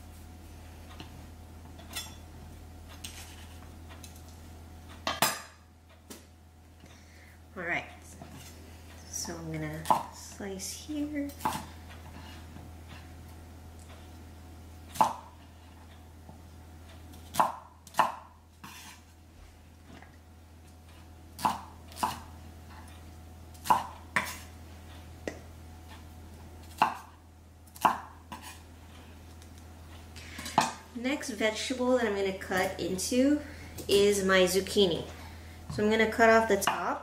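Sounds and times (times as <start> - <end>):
knife chopping on wooden board: 17.3 - 19.0, 21.4 - 22.3, 23.6 - 24.4, 26.6 - 27.1, 27.8 - 28.6.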